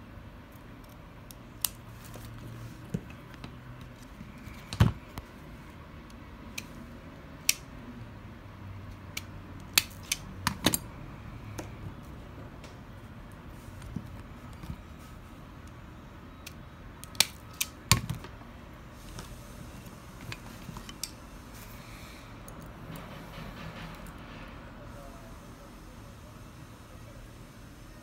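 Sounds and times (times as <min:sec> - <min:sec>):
wire stripper clicks and snaps: 0:09.1 - 0:10.8, 0:16.4 - 0:18.2.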